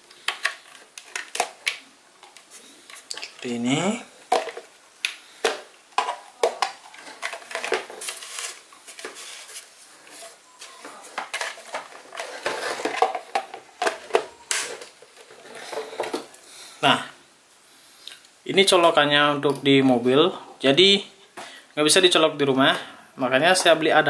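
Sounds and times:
plastic parts clicking and knocking: 0.2s - 3.5s, 4.3s - 9.2s, 10.8s - 16.4s.

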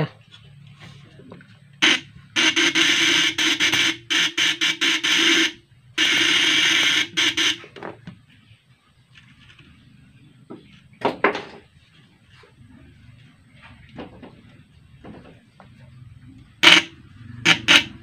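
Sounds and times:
steady hum: 0.5s - 10.4s, 16.3s - 18.0s
electric interrupter harsh buzz: 1.8s - 7.7s, 16.6s - 18.0s.

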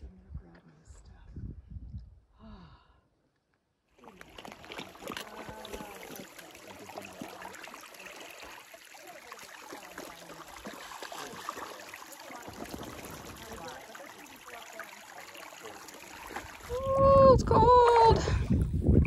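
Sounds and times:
stream babbling over rocks: 4.0s - 17.0s.

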